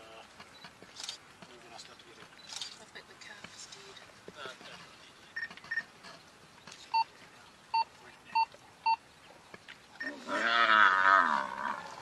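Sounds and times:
buffalo bellowing: 10.0s - 12.0s.

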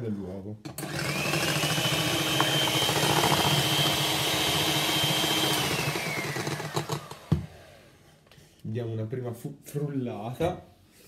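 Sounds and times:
electric hand mixer whirring: 0.7s - 8.0s.

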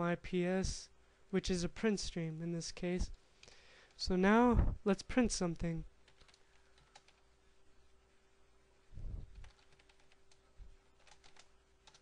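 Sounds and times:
faint steady hum: 0.0s - 12.0s
computer keyboard typing: 6.0s - 7.2s, 9.3s - 10.4s, 11.0s - 12.0s.

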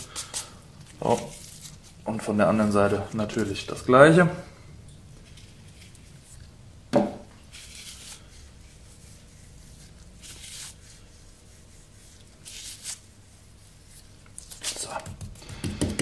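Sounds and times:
salt grains rustling: 7.4s - 14.9s.

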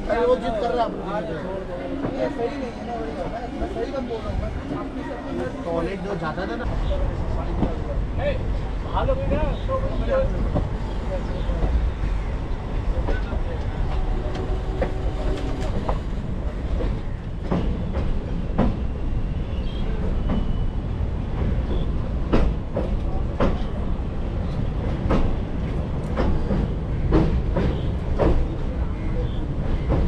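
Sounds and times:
train rumbling over bridge: 0.0s - 30.0s.

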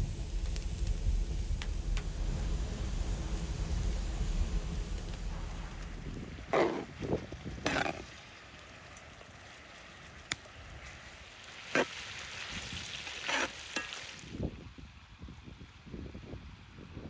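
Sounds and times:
meat sizzling in a metal pan: 0.0s - 9.6s, 10.8s - 14.4s
metal skimmer scraping a pan: 7.6s - 8.1s, 13.2s - 14.1s.

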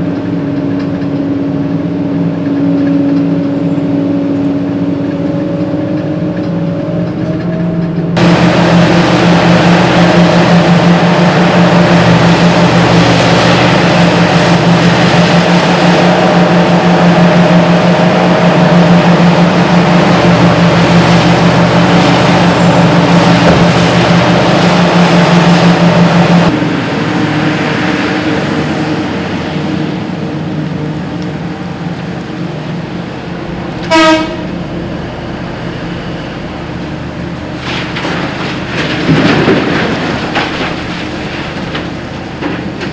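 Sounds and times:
diesel engines droning: 0.0s - 42.9s.

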